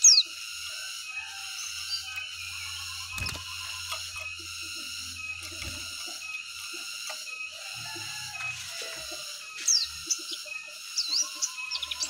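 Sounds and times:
bird whistling: 0:00.0 - 0:00.3, 0:01.1 - 0:12.0
high-pitched background drone: 0:00.0 - 0:12.0.

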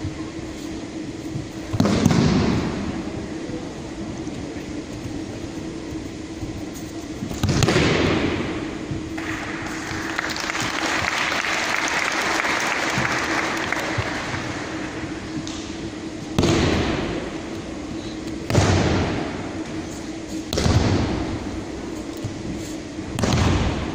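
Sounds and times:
audience applause: 0:09.2 - 0:15.0.

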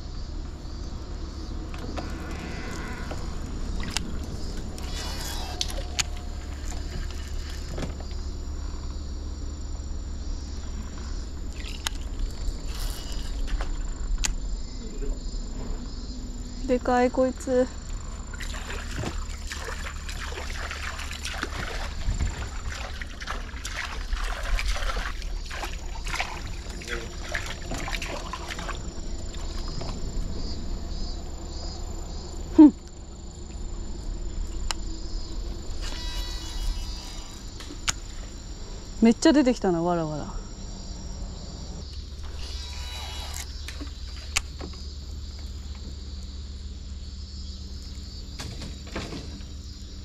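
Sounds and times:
insects chirring: 0:00.0 - 0:50.0
low steady rumble: 0:00.0 - 0:50.0
water splashing: 0:18.1 - 0:30.7.

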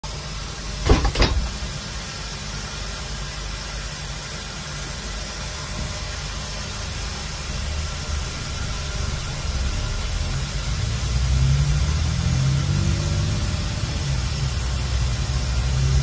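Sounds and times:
air conditioning hissing: 0:00.1 - 0:16.0
sharp knocks: 0:00.8 - 0:01.7
low rumble of moving bus: 0:05.0 - 0:16.0.

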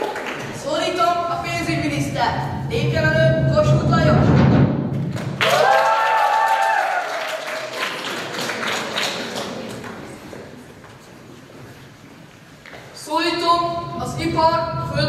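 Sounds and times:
low drum-like rumble: 0:01.0 - 0:05.4, 0:13.5 - 0:15.0.

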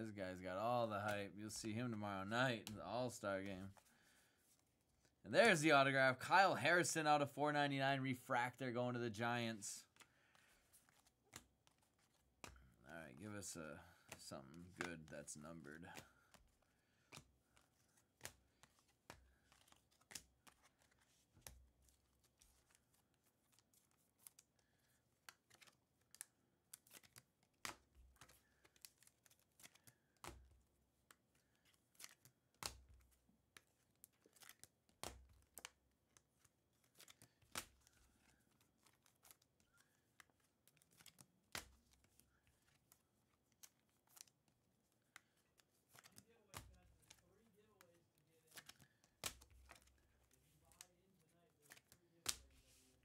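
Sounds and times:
trading cards flipped and set down: 0:09.9 - 0:12.9, 0:13.8 - 0:50.9, 0:51.5 - 0:53.0.

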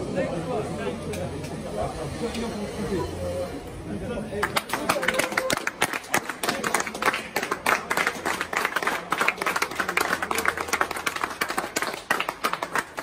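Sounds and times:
people clapping hands: 0:04.4 - 0:13.0.

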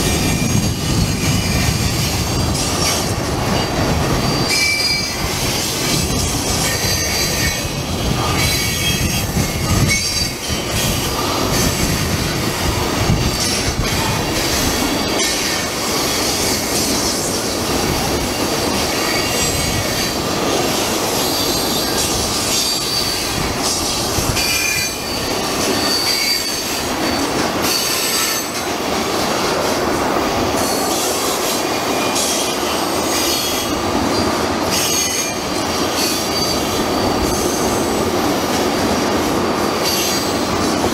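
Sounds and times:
train wheels rumbling on rail: 0:00.0 - 0:40.9
wheel squeal: 0:00.2 - 0:06.0, 0:06.6 - 0:12.1, 0:21.2 - 0:28.6, 0:36.0 - 0:38.0.

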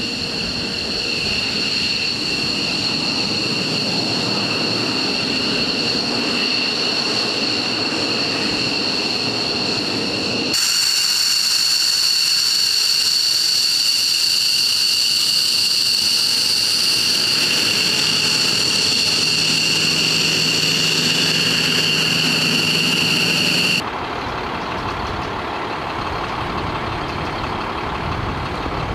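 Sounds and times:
jet engines whining: 0:00.0 - 0:28.9
low hum: 0:00.0 - 0:28.9
truck engine idling: 0:17.9 - 0:28.9.

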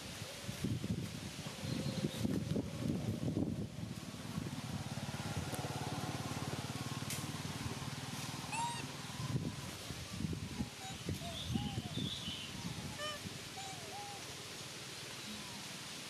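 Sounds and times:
high squeaky chirps: 0:08.5 - 0:08.8.

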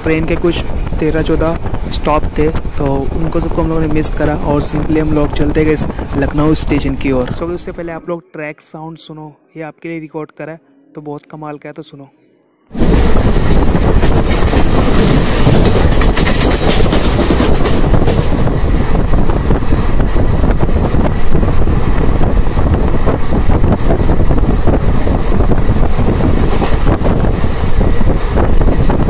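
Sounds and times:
train rolling noise: 0:00.0 - 0:08.1, 0:12.7 - 0:29.0
wheels clattering on track: 0:12.8 - 0:29.0.

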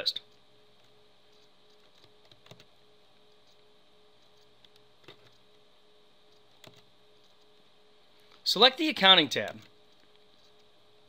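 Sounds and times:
faint room hum: 0:00.0 - 0:11.0
computer mouse clicks: 0:00.2 - 0:05.6, 0:06.2 - 0:07.6, 0:09.4 - 0:10.7.

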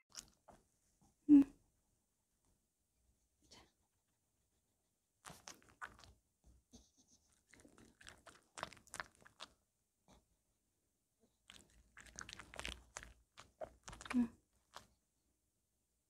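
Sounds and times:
dog crunching strawberry: 0:05.2 - 0:06.2, 0:07.4 - 0:09.6, 0:11.5 - 0:14.9.

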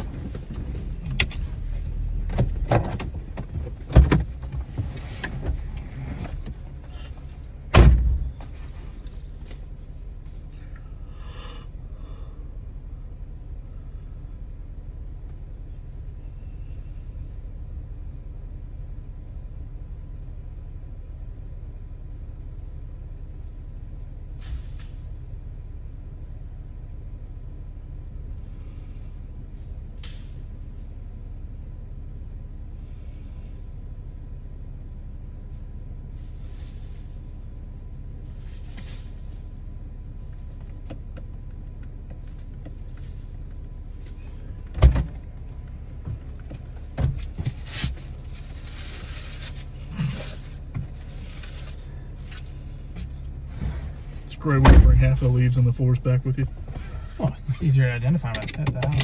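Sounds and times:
clunks and knocks: 0:00.0 - 0:08.8, 0:44.6 - 0:47.6, 0:58.2 - 0:59.0
vehicle engine idling: 0:00.0 - 0:59.0.

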